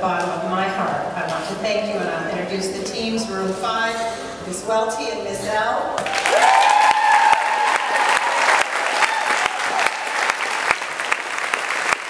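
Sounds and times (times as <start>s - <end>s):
audience applauding: 6.0s - 12.0s
person whooping: 6.1s - 10.2s.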